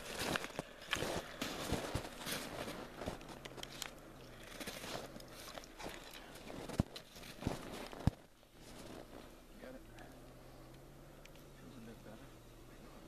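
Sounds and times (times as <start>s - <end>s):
footsteps crunching snow and ice: 0.0s - 9.4s.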